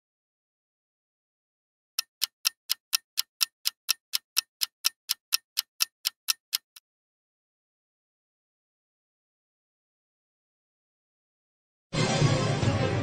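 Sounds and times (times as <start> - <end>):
clock ticking: 2.0 - 6.8.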